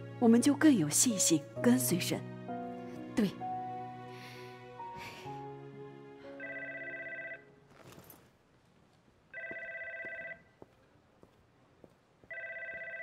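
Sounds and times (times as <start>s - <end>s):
telephone ringing electronically: 6.4s - 7.6s, 9.3s - 10.5s, 12.3s - 13.0s
faint footsteps: 7.7s - 13.0s.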